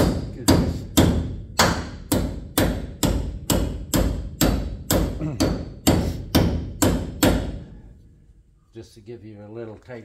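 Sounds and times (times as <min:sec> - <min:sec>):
hammer striking steel: 0:00.0 - 0:07.6.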